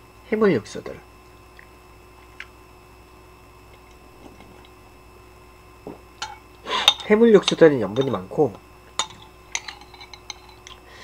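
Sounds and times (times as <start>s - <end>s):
faint electrical hum: 0.0s - 11.0s
soft eating sound: 1.2s - 4.9s
metal spoon clicking on bowl: 9.0s - 10.8s.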